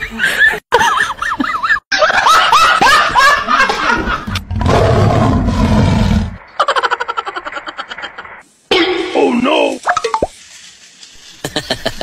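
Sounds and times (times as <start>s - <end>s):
high-pitched laughter: 6.6s - 8.4s.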